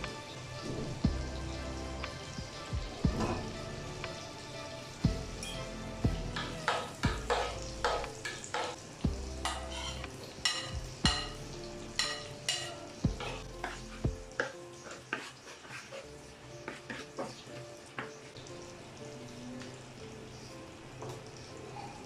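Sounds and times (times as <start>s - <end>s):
soft background music: 0.0s - 22.0s
spices sizzling in hot fat: 0.0s - 22.0s
wooden spatula stirring a pan: 6.0s - 11.2s, 12.0s - 18.5s.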